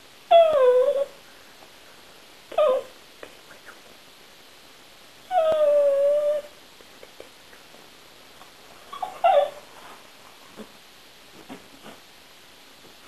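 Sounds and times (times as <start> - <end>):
dog whining: 0.3 - 1.2, 2.5 - 3.0, 5.3 - 6.6, 8.9 - 9.7.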